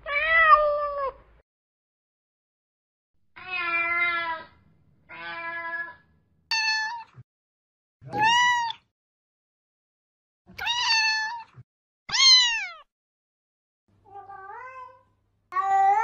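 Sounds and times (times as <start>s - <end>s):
cats meowing: 0.1s - 1.2s, 8.0s - 8.8s, 10.6s - 11.5s, 12.1s - 12.9s, 15.6s - 16.0s.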